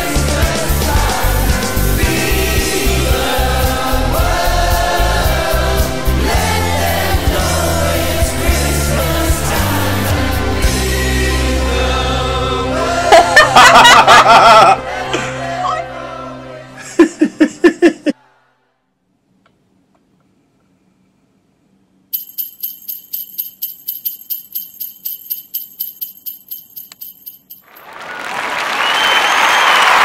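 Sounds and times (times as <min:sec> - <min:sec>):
burst of laughter: 0:13.1 - 0:14.8, 0:16.8 - 0:18.2
jingle bells shaken: 0:22.1 - 0:28.0
applause: 0:27.7 - 0:30.0.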